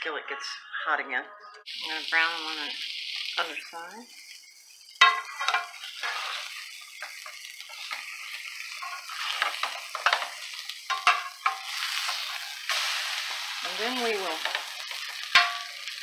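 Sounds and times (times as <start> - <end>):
steaks sizzling in skillet: 1.7 - 16.0
spatula scraping pan: 5.0 - 16.0.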